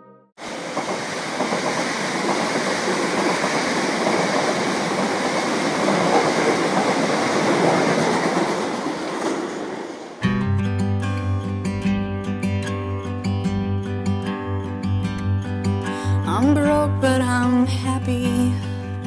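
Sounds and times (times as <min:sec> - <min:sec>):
train passing at speed: 0:00.4 - 0:10.2.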